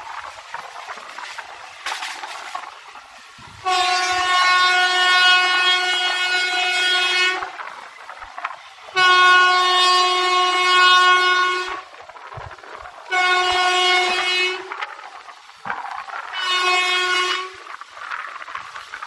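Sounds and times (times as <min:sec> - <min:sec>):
train running noise: 0:00.0 - 0:19.0
locomotive horn blasts: 0:03.6 - 0:07.6, 0:08.9 - 0:11.9, 0:13.0 - 0:14.8, 0:16.3 - 0:17.7.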